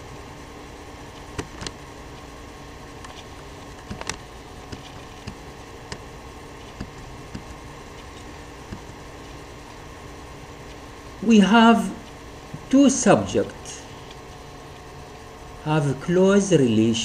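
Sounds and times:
faint steady tones: 0.0 - 17.0
steady low hum: 0.0 - 17.0
computer mouse clicking: 1.1 - 2.3, 3.0 - 8.9.

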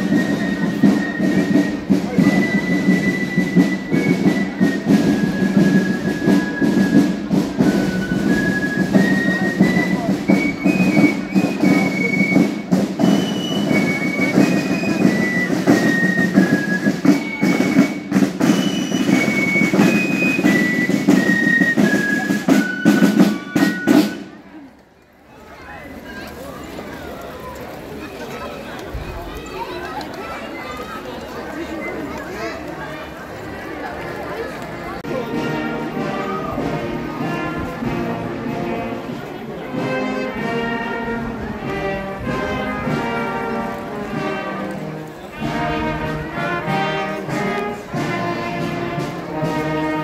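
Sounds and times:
snare drums rattling: 0.0 - 24.4, 35.0 - 50.0.

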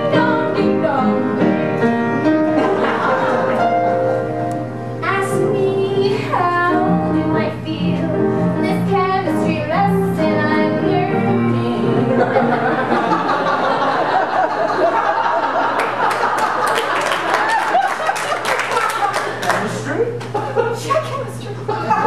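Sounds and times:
audience laughter: 2.3 - 4.4, 11.9 - 22.0
woman singing show tune: 5.0 - 12.1
audience clapping: 15.4 - 20.5.

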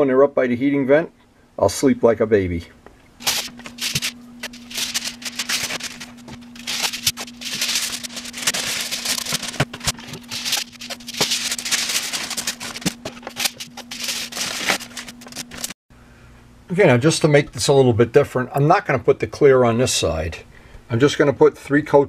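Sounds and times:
steady low hum: 2.5 - 18.6
kitchen foil crinkling: 3.2 - 15.8.

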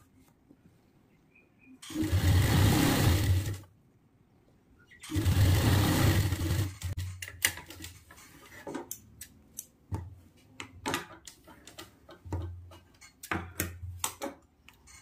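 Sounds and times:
sewing machine stopping: 1.8 - 3.6, 5.1 - 7.0.

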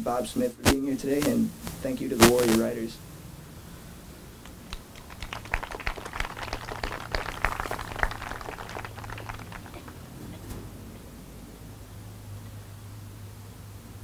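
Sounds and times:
small crowd applauding: 4.5 - 10.5.

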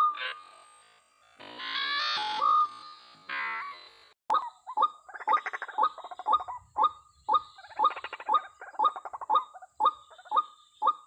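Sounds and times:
rough bird chattering: 4.3 - 11.0.

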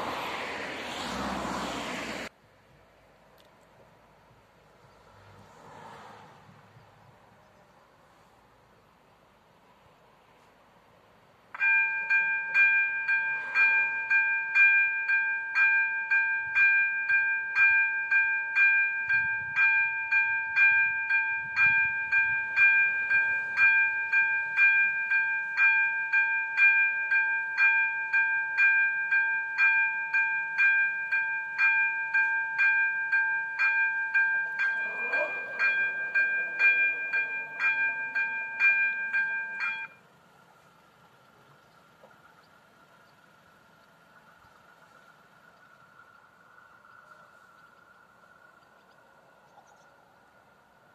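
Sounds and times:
level crossing warning bell ringing: 11.6 - 40.2.

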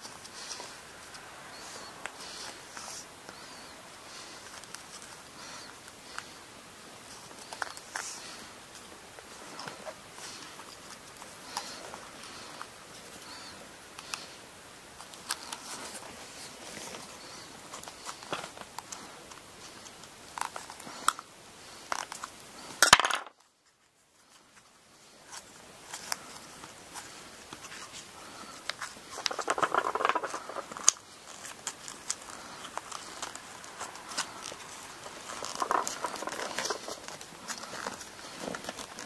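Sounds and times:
fingers rubbing scratchily: 29.0 - 39.0.

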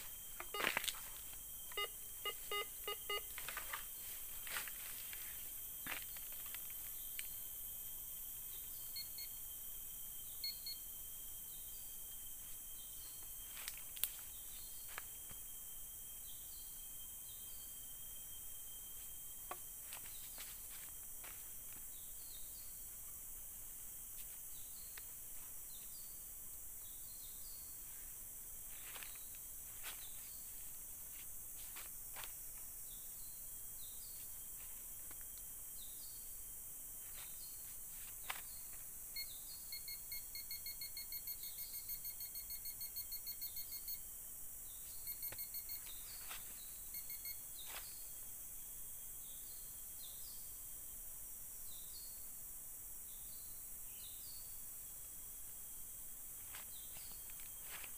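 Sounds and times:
metal detector beeps: 0.0 - 3.8, 8.9 - 9.4, 10.4 - 10.9, 39.2 - 44.0, 45.0 - 47.4
faint chirps: 0.0 - 21.0, 37.1 - 50.7
steady high hiss: 0.0 - 57.9.

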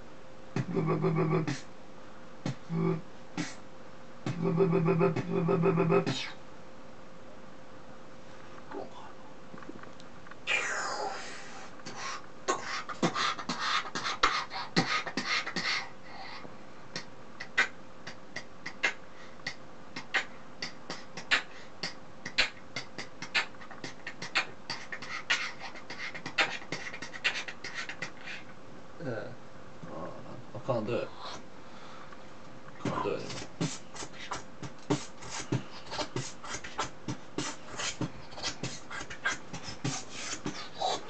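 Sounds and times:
man beatboxing: 0.6 - 1.7, 2.4 - 3.6, 4.2 - 6.4, 10.5 - 15.9, 16.9 - 28.4, 32.8 - 41.0.

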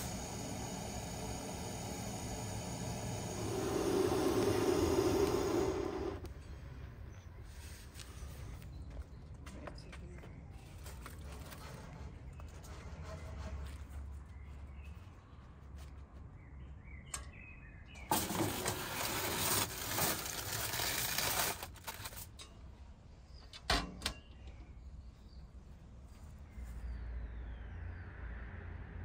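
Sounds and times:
foil crinkling: 18.1 - 22.3.

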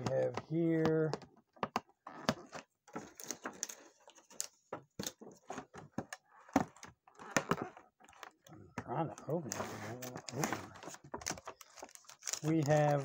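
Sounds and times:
foil seal peeling crackles: 9.5 - 13.0.

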